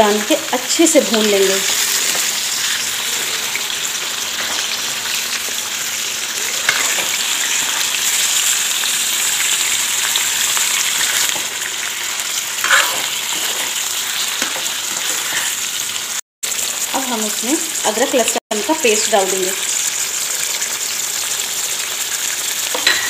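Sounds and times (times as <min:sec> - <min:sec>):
chicken sizzling in hot oil: 0:00.0 - 0:23.0
ladle stirring in pan: 0:06.4 - 0:08.2, 0:12.6 - 0:15.6.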